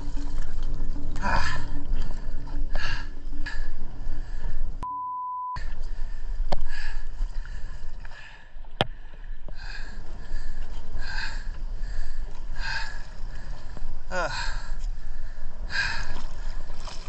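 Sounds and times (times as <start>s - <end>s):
water splashing and sloshing: 0.0s - 4.8s, 5.6s - 17.0s
short electronic beep: 4.8s - 5.6s.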